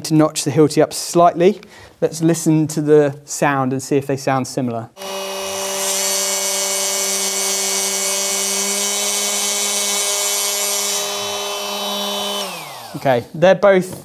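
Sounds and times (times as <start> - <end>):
oscillating multi-tools humming: 5.0 - 13.0
tool winding down: 5.0 - 13.2.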